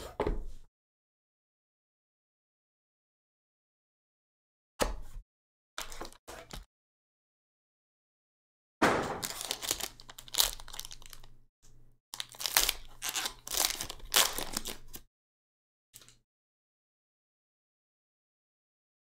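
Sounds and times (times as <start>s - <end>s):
foil wrapper tearing and crinkling: 9.2s - 11.4s, 12.2s - 15.0s.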